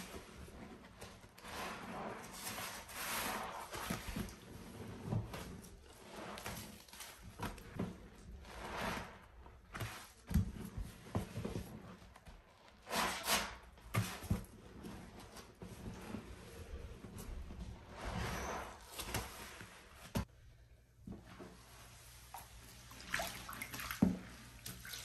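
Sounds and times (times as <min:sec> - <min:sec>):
sponges squelching in suds: 0:00.0 - 0:12.1, 0:21.6 - 0:25.0.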